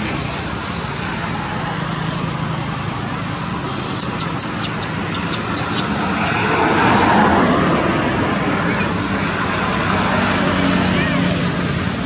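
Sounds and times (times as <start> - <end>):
loud vehicle passing: 0.0 - 12.0
road traffic: 0.0 - 12.0
short high-pitched chirps: 4.0 - 5.9.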